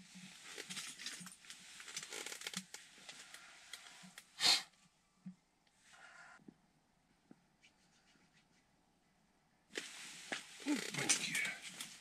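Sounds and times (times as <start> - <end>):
winter clothing rustling: 9.7 - 12.0.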